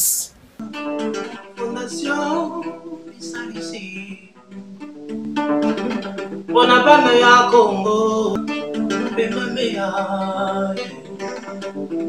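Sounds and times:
fingerpicked acoustic guitar: 0:00.6 - 0:12.0
person singing: 0:01.5 - 0:04.4, 0:06.5 - 0:11.6.

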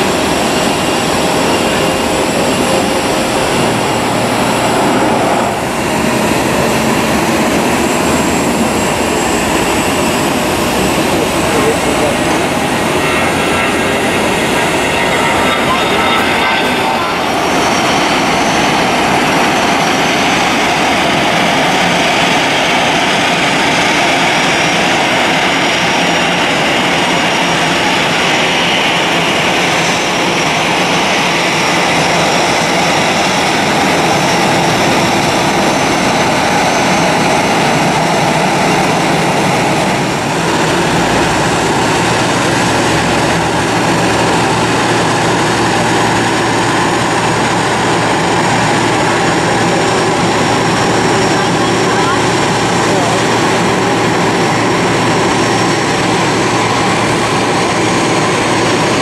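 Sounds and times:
low hum: 0:00.0 - 0:21.1
jet engines running: 0:00.0 - 0:59.0.

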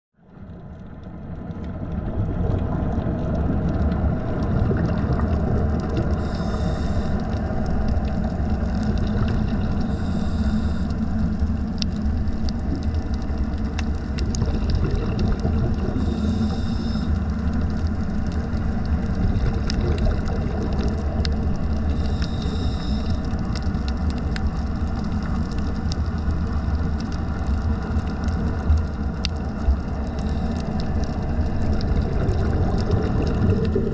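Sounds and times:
low underwater rumble: 0:00.2 - 0:33.9
diver's regulator hissing: 0:06.2 - 0:07.2, 0:09.9 - 0:11.0, 0:16.0 - 0:17.2, 0:22.0 - 0:23.3.

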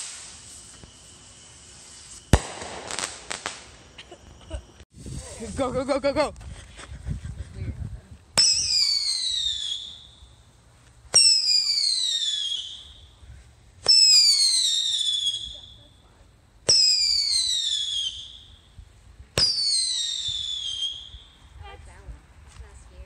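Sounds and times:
whistling firework shots: 0:00.0 - 0:04.8, 0:08.4 - 0:10.4, 0:11.1 - 0:13.2, 0:13.8 - 0:21.5.

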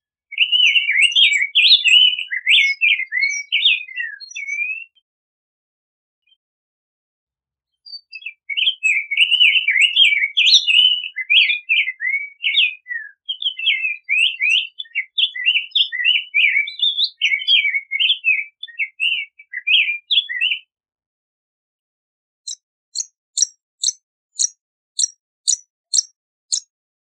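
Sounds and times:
bird singing warbled song: 0:00.2 - 0:05.1, 0:07.7 - 0:20.7, 0:22.5 - 0:26.7.

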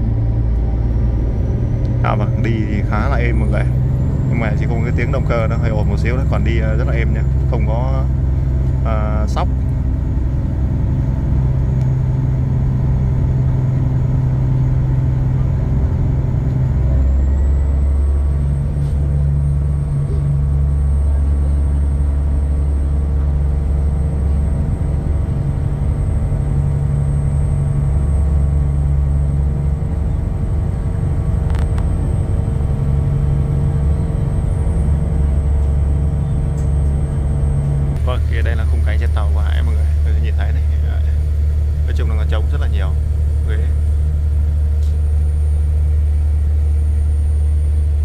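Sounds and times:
boat engines droning: 0:00.0 - 0:48.0.

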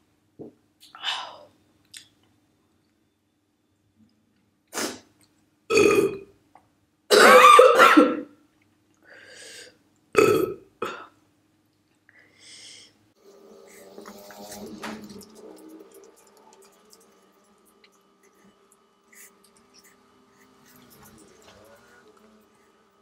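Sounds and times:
woman burping: 0:05.7 - 0:06.3, 0:10.2 - 0:11.1.

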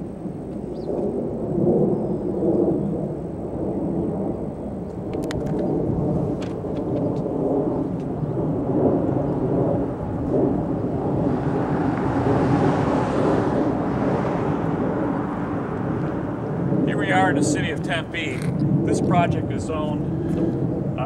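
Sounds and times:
wind buffeting microphone: 0:00.0 - 0:21.0.

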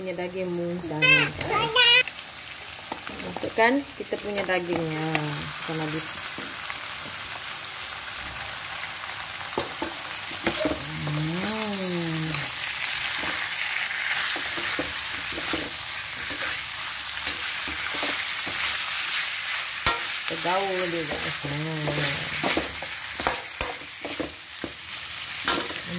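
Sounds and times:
meat sizzling in oil: 0:00.0 - 0:25.9
metal spatula scraping a wok: 0:13.0 - 0:20.2.

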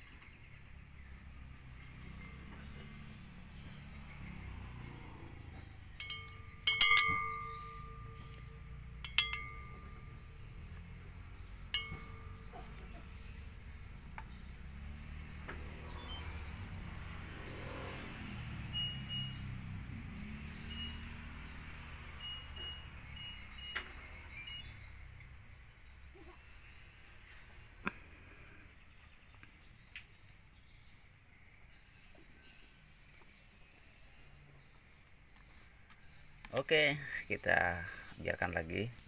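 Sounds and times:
chime-like ringing tone: 0:06.0 - 0:10.6, 0:11.7 - 0:13.3.

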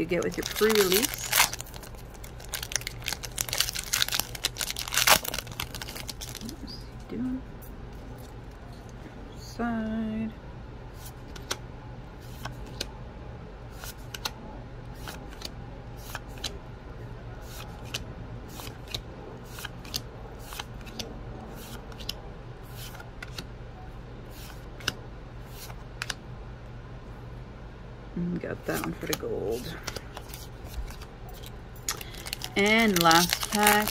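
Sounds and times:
low steady hum: 0:00.0 - 0:33.9.

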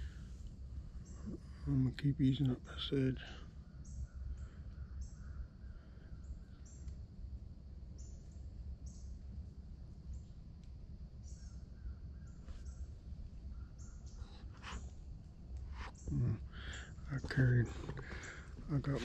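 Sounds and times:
steady low rumble: 0:00.0 - 0:19.0
birds calling: 0:11.2 - 0:19.0.

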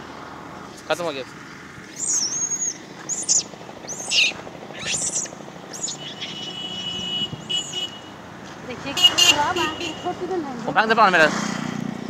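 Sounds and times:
birds chirping: 0:00.7 - 0:08.2.

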